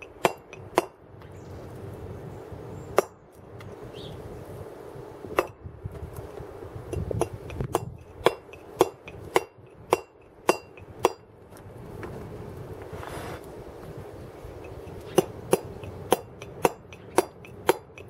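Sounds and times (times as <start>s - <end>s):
mallet striking chisel on stone: 0.0s - 1.0s, 7.2s - 11.2s, 15.1s - 18.0s.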